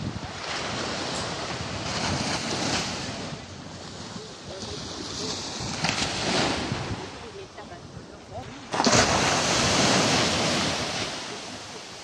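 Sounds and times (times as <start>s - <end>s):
wind buffeting microphone: 0.0s - 11.7s
small waves breaking on beach: 0.0s - 12.0s.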